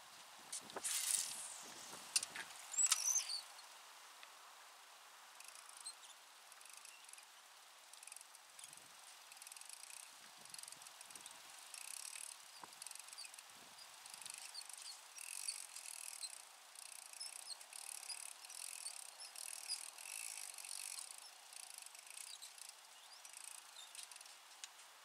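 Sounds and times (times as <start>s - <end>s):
fishing reel whirring: 2.7s - 3.5s, 5.4s - 7.3s, 7.9s - 24.4s.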